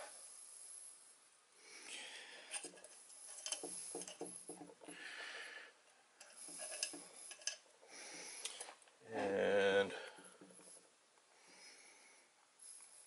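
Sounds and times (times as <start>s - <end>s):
small metallic clicks and scraping: 2.5s - 5.0s, 6.2s - 7.7s.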